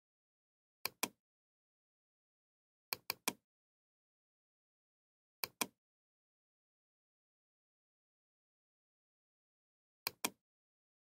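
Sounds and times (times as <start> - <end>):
computer mouse clicking: 0.8 - 1.2, 2.9 - 3.4, 5.4 - 5.8, 10.1 - 10.4.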